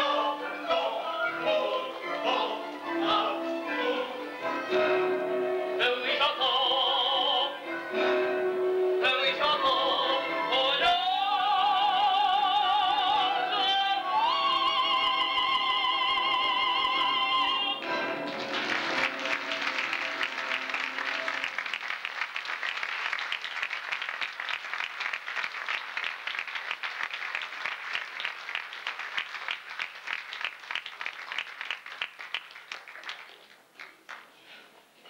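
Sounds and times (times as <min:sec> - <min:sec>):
audience applauding: 0:17.9 - 0:34.4.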